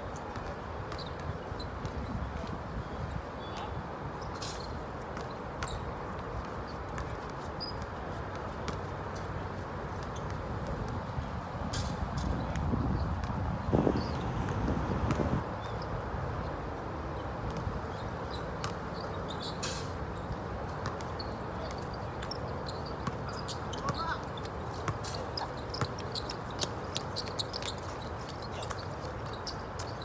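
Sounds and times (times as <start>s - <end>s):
background noise: 0.0s - 30.0s
shoe squeaks: 0.8s - 2.3s, 2.9s - 8.4s, 11.7s - 14.6s, 17.2s - 30.0s.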